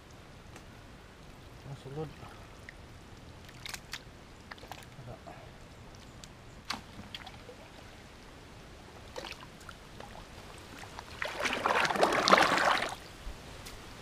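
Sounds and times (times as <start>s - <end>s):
faint small splashes: 2.1s - 5.1s, 6.6s - 8.0s, 9.0s - 13.0s
muddy water sloshing from bucket: 3.4s - 5.0s, 9.0s - 13.0s.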